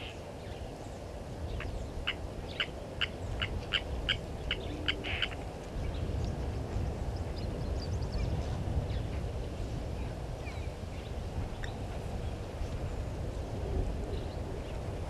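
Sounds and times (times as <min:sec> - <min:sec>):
faint bird calls: 0:01.5 - 0:05.5.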